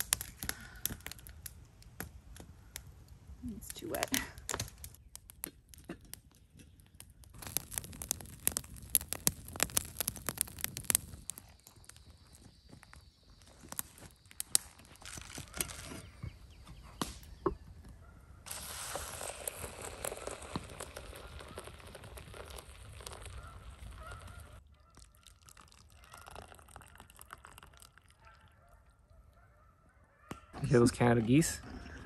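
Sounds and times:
water pouring into coffee filter: 18.5 - 24.2, 24.9 - 28.5.

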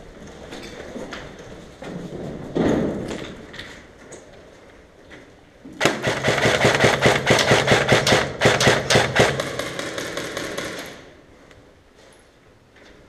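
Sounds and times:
airsoft rifle firing full auto: 5.8 - 11.1.

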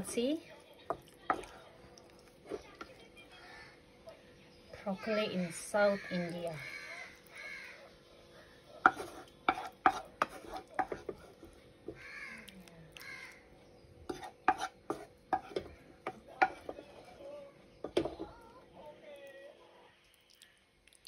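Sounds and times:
bird cawing: 5.8 - 7.9, 12.0 - 13.5
spoon tapping ceramic plate: 15.3 - 16.8.

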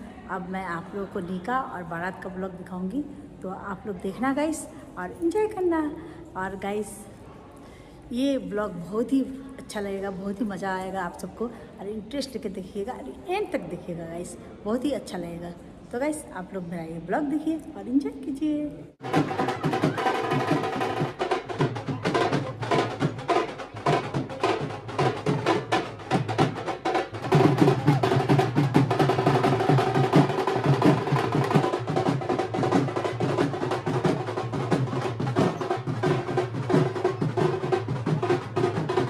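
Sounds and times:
music with fast dense drumming: 19.0 - 39.0.

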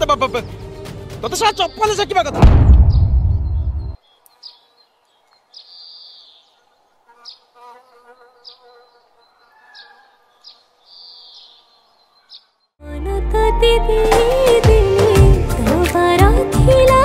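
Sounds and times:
deep boom: 2.2 - 4.0.

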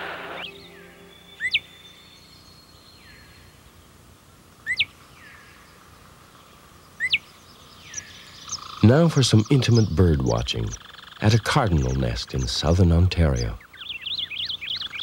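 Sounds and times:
bird calling sharp notes: 0.0 - 2.2
faint outdoor background: 0.0 - 15.0.

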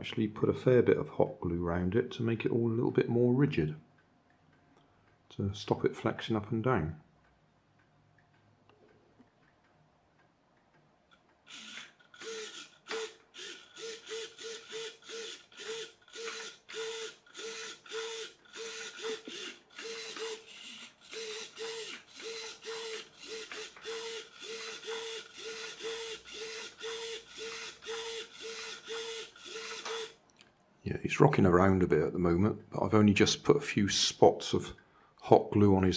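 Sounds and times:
micro servo whirring: 11.5 - 30.2.

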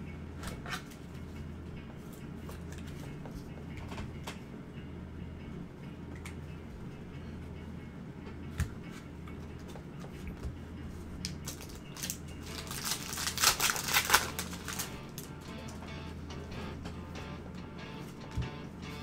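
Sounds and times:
low steady hum: 0.0 - 19.0
foil wrapper crinkling and tearing: 11.4 - 15.4.

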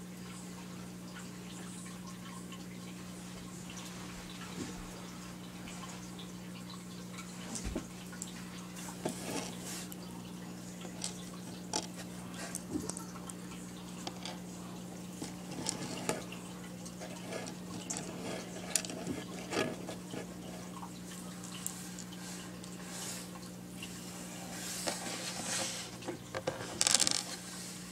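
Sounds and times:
low electrical hum: 0.0 - 27.9
plastic pieces clicking: 26.4 - 27.2.

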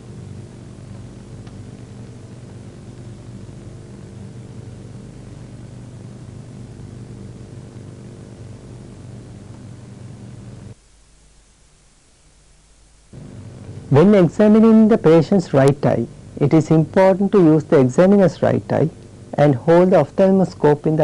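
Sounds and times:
low electrical hum: 0.0 - 21.0
steady hiss: 0.0 - 21.0.

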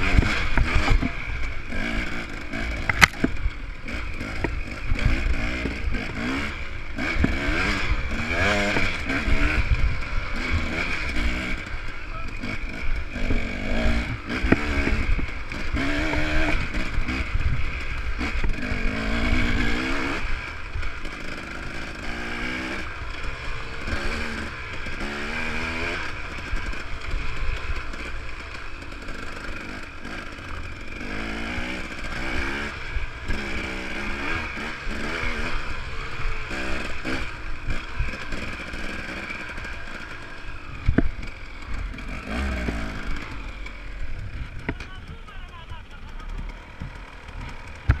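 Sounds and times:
dirt bike engine revving: 0.0 - 48.0
wind rumble and bumps: 46.3 - 48.0.

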